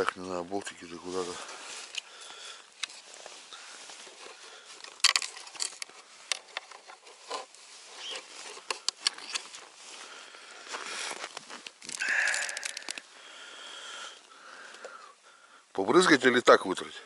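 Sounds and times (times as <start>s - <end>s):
plastic cover handled: 2.8s - 9.8s, 10.7s - 13.1s.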